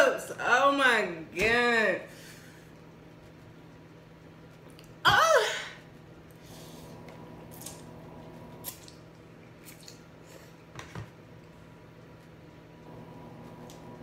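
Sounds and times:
woman's pained cry: 5.1 - 5.8.

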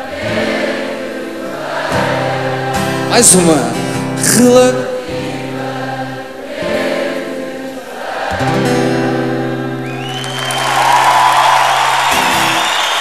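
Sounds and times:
crowd singing along: 0.0 - 10.8
acoustic guitar: 0.0 - 13.0
man singing: 3.0 - 5.4
applause and cheering: 9.8 - 13.0.

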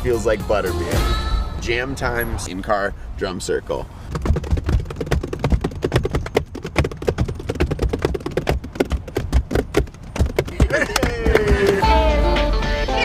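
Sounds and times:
hands drumming on steering wheel: 4.1 - 12.0.

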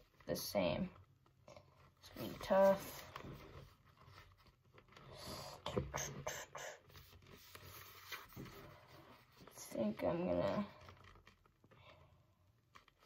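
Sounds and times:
sticker rubbing on helmet: 5.8 - 11.8.

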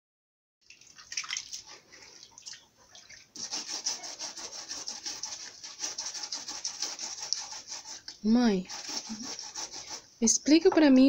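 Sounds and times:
water splashing: 0.6 - 3.9
hands scraping roots in water: 0.7 - 10.1.

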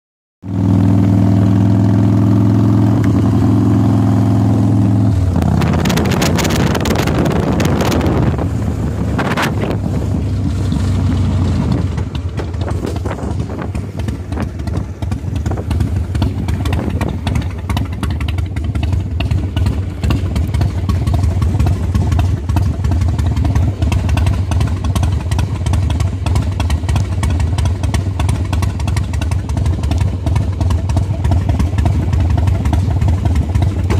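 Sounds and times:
motorcycle engine running: 0.4 - 33.9
road noise: 0.4 - 33.9
wind rushing over microphone: 5.4 - 17.6.

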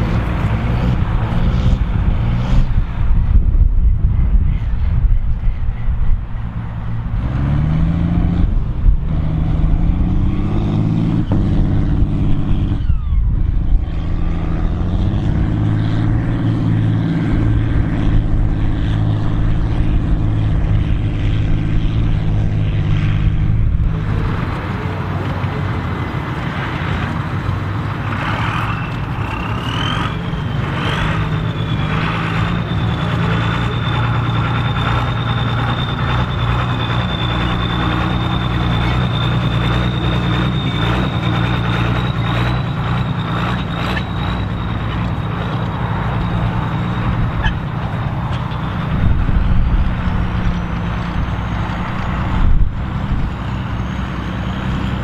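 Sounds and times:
tractor diesel engine under load: 0.0 - 55.0
turbocharger whistle: 11.1 - 24.6, 27.9 - 55.0.

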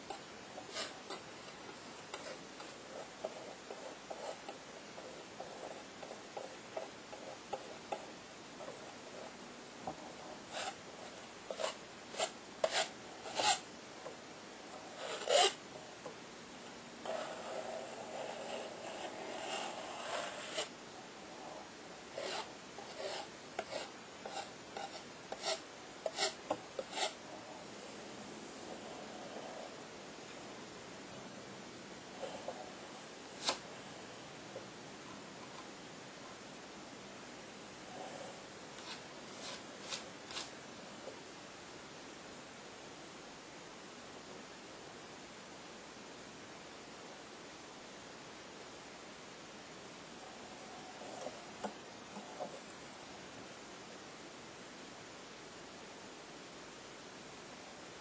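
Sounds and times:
palette knife scraping paint: 0.0 - 9.4, 10.0 - 13.7, 14.7 - 15.6, 17.0 - 20.7, 22.1 - 27.6, 33.4 - 33.6, 38.8 - 40.5.

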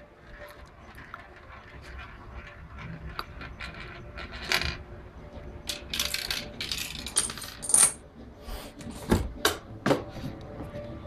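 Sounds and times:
dominoes clattering on wooden floor: 0.8 - 4.8, 5.7 - 8.0.

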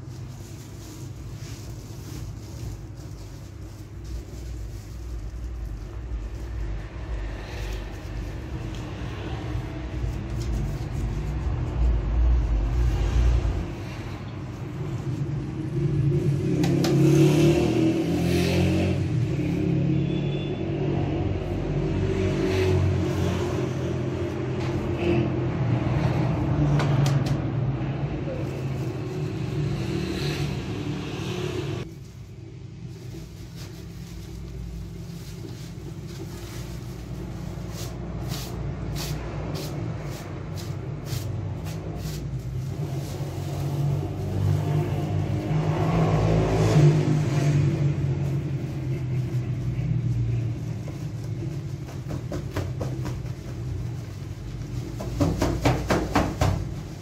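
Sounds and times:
sack shaking swishing rustles: 0.0 - 6.7, 31.8 - 45.6
flour pouring from sack: 0.0 - 13.6.

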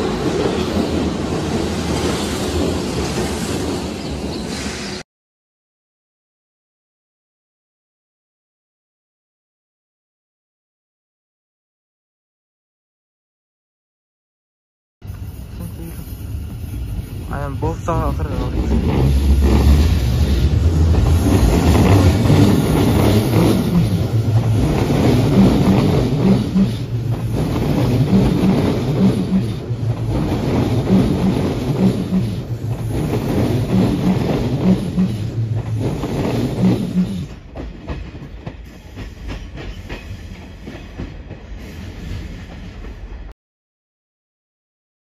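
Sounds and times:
train rumble: 0.0 - 5.0, 15.0 - 43.3.

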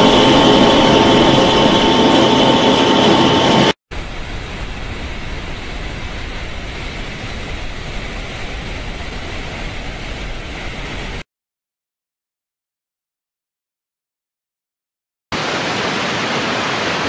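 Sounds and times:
rushing flow: 0.0 - 11.2, 15.3 - 17.0.

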